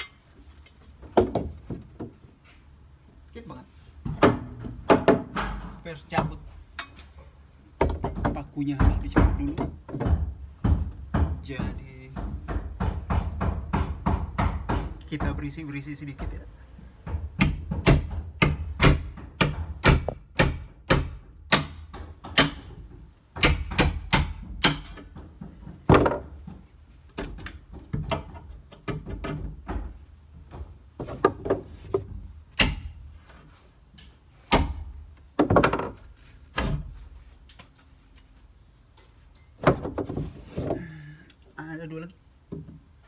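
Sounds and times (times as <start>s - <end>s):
hammer knocking on wood: 7.8s - 15.5s, 17.0s - 22.7s.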